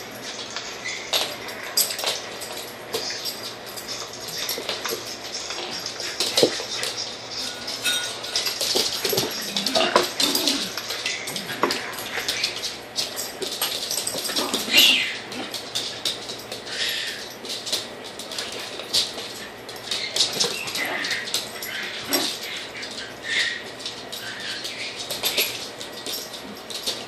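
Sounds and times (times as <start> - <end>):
dogs scuffling: 0.0 - 27.0
claws clicking on hard floor: 0.2 - 27.0
dogs growling and whining: 9.0 - 12.9, 13.9 - 15.8, 16.6 - 17.4, 19.8 - 26.7.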